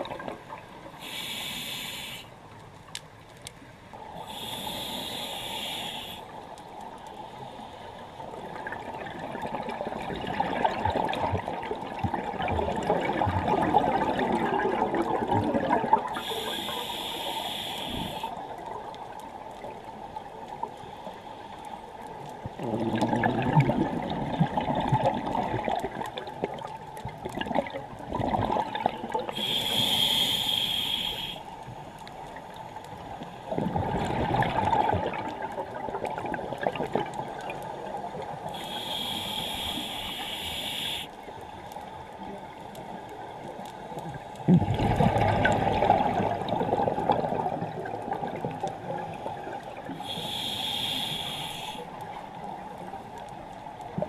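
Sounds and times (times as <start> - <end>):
bubbles gurgling on exhale: 8.6 - 16.2, 22.5 - 29.4, 33.5 - 37.6, 44.5 - 50.2.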